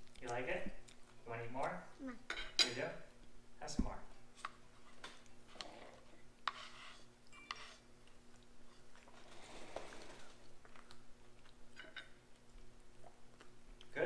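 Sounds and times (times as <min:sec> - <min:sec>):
faint chewing: 0:00.0 - 0:01.7, 0:08.0 - 0:14.0
fork scraping on a plate: 0:04.9 - 0:07.9.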